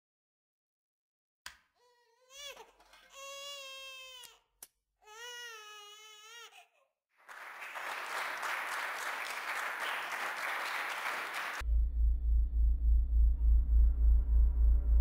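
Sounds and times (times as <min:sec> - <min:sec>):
audience applause: 0:07.2 - 0:11.6
deep pulsing bass beat: 0:11.6 - 0:15.0.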